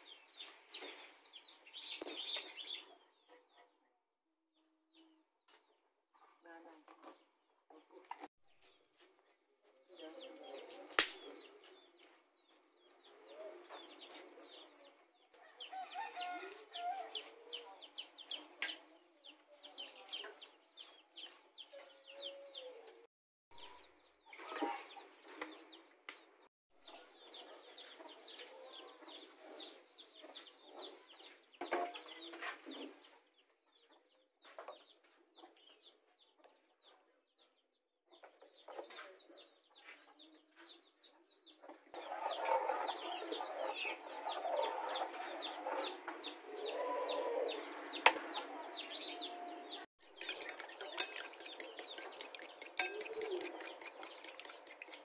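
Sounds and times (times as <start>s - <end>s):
sharp click: 10.9s - 11.2s
chickens clucking: 26.8s - 37.0s, 38.2s - 55.0s.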